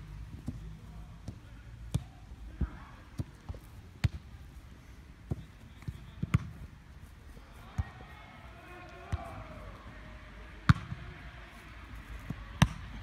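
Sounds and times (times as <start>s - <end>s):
football kicked and bouncing: 0.2s - 4.3s, 5.2s - 6.7s, 10.7s - 11.0s, 12.2s - 13.0s.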